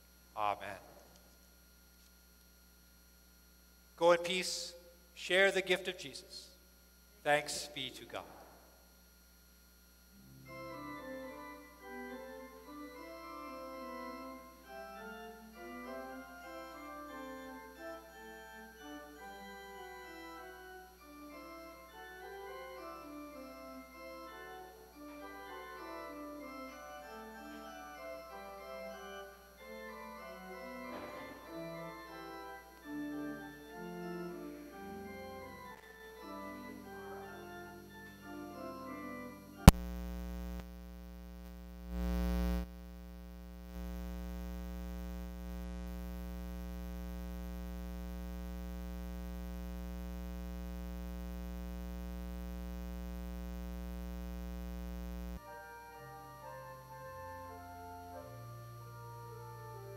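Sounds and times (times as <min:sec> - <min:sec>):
organ playing sustained chords: 0:10.0 - 0:39.7, 0:55.2 - 0:59.9.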